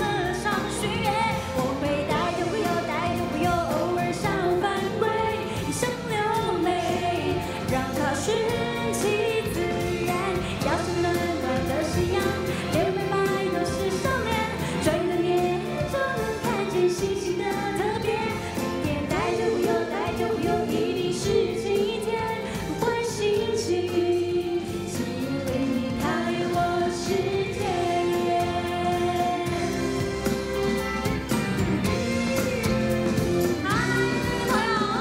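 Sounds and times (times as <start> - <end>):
woman singing into a microphone: 0.0 - 30.2, 31.8 - 35.0
keyboard: 0.0 - 35.0
live band playing: 0.0 - 35.0.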